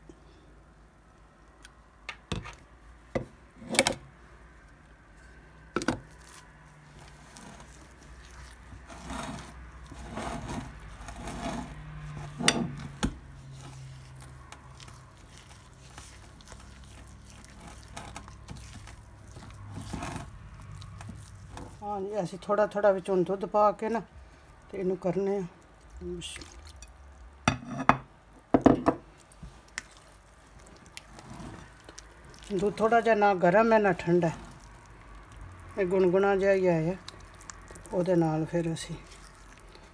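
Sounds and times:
whisk stirring batter in glass bowl: 0:06.0 - 0:22.0, 0:29.5 - 0:34.7, 0:35.8 - 0:39.9
spatula scraping blender jar: 0:07.0 - 0:21.8, 0:31.1 - 0:31.8.

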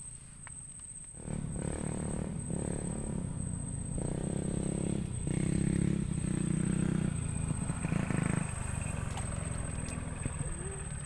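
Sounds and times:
small engine running: 0:01.2 - 0:11.0.

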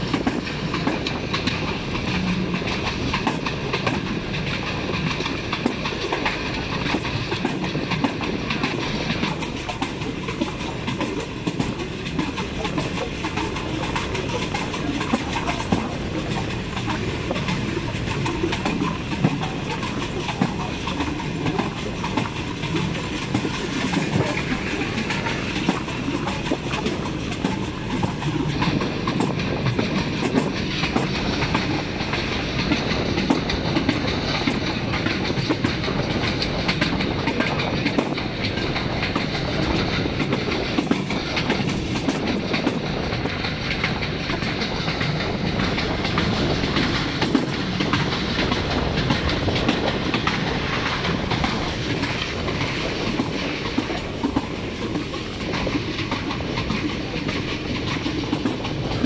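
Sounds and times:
clacks over rail joints: 0:00.0 - 0:59.0
train wheels rumbling on track: 0:00.0 - 0:59.0.

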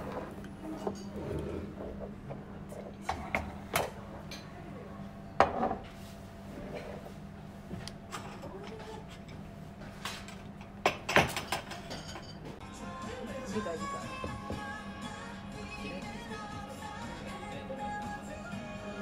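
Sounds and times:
cutlery clinking on plates: 0:10.1 - 0:12.6.

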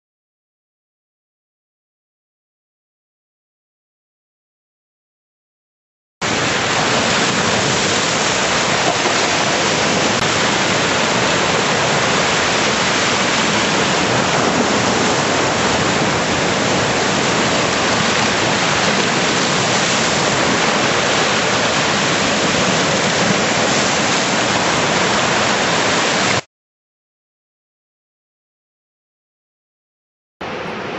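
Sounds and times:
turbulent water rushing: 0:06.2 - 0:26.5.

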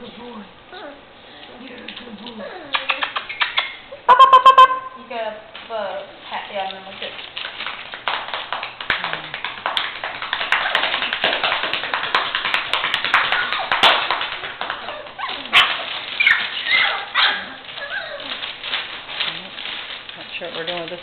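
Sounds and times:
newspaper crinkling and tearing: 0:05.6 - 0:21.0
puppy whimpers: 0:14.8 - 0:18.6.

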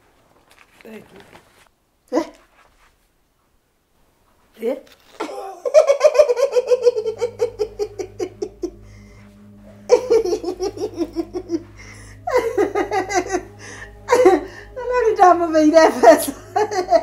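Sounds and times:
woman laughing heartily: 0:05.2 - 0:09.0, 0:09.6 - 0:14.8, 0:16.2 - 0:17.0.

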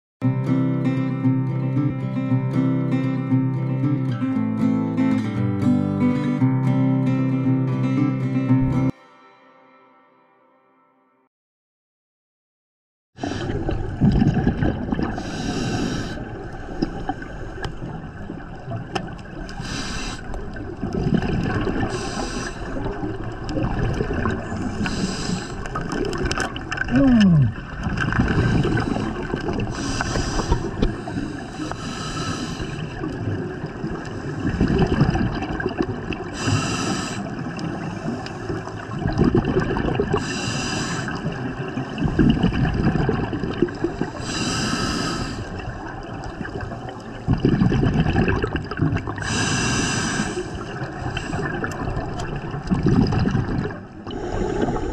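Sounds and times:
exhaled bubbles rumbling: 0:13.2 - 0:54.9
regulator hissing on inhalation: 0:15.2 - 0:17.6, 0:19.6 - 0:20.4, 0:21.8 - 0:22.8, 0:24.7 - 0:25.7, 0:29.7 - 0:32.9, 0:36.4 - 0:38.6, 0:40.2 - 0:41.3, 0:44.2 - 0:45.5, 0:49.2 - 0:51.5.

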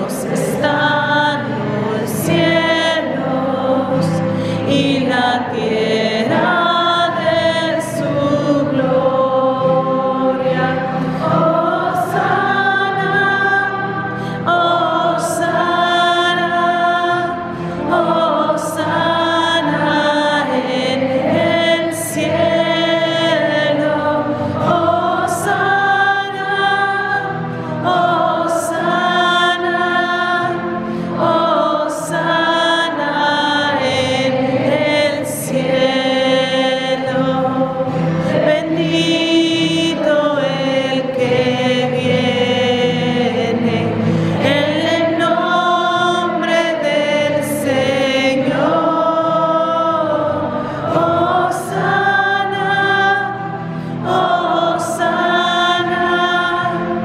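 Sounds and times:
group singing a chant: 0:00.0 - 0:57.0.

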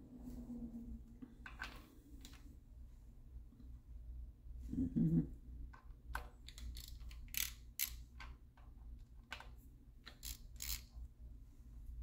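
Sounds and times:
socket ratchet clicking: 0:06.4 - 0:08.4, 0:10.0 - 0:10.9.

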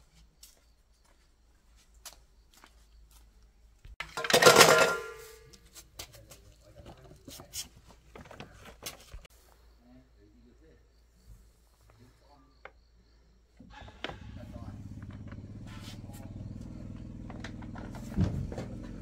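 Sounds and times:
parts clicking and rattling: 0:04.0 - 0:05.3
metal parts clattering into bowl: 0:04.0 - 0:05.4
metal bowl ringing: 0:04.4 - 0:05.4.

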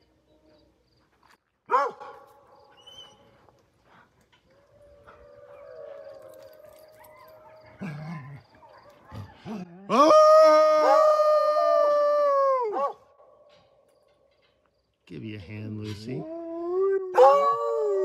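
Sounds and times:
dog howling: 0:04.5 - 0:13.0, 0:16.2 - 0:18.0.

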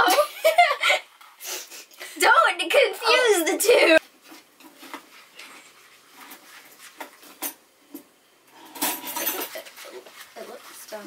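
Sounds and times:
rustling: 0:04.0 - 0:07.6, 0:08.6 - 0:11.0
spoon scraping frosting in bowl: 0:09.3 - 0:11.0.

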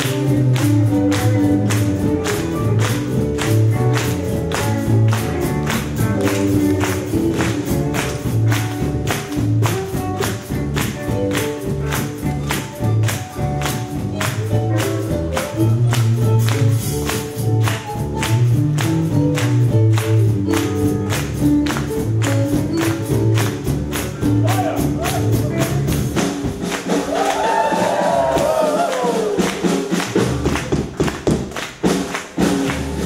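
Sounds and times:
keyboard chords: 0:00.0 - 0:26.2
electric upright bass: 0:00.0 - 0:33.0
percussion beat: 0:00.0 - 0:33.0.

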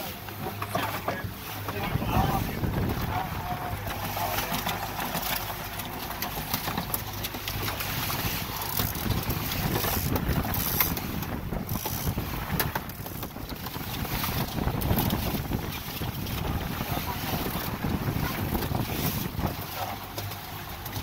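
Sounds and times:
water rushing past boat: 0:00.0 - 0:21.0
wind buffeting microphone: 0:01.7 - 0:04.1, 0:07.8 - 0:19.8.

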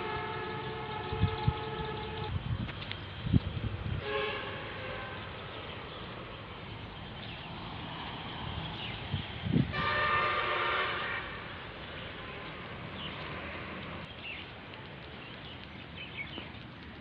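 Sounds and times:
horn sounding: 0:00.0 - 0:02.4, 0:04.0 - 0:05.3, 0:09.7 - 0:11.5.

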